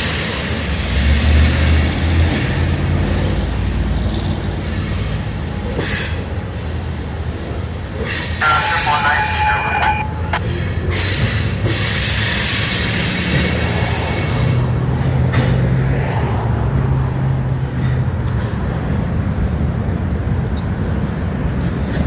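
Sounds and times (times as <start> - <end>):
freight cars rumbling on rails: 0.0 - 22.0
wheel hiss and squeal: 2.3 - 3.3.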